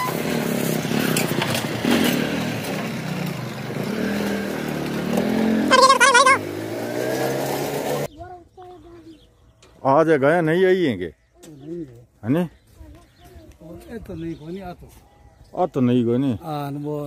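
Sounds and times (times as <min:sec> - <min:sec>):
wavering high-pitched call: 0:05.7 - 0:06.4.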